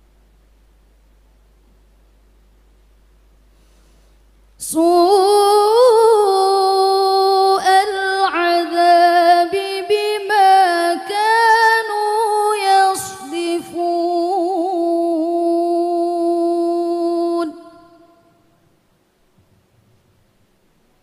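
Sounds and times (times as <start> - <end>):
breaths: 3.5 - 4.4
woman chanting recitation: 4.6 - 18.4.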